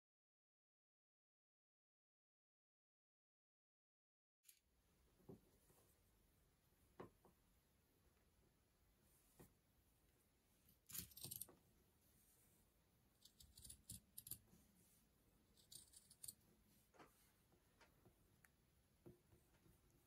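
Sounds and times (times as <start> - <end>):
scissors snipping fabric: 10.9 - 11.5, 13.2 - 14.4, 15.5 - 16.4.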